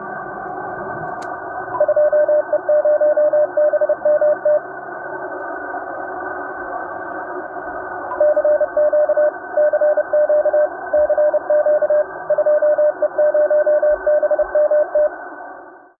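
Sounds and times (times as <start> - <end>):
radio receiver hiss: 0.0 - 16.0
morse code beeps: 1.8 - 4.6, 8.1 - 15.1.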